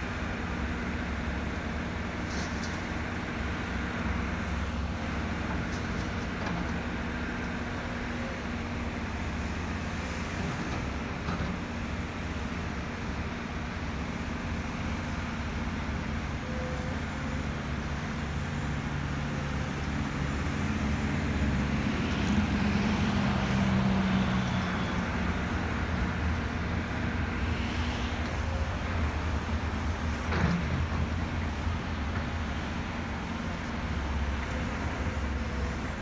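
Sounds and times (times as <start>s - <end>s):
excavator engine and hydraulics: 0.0s - 36.0s.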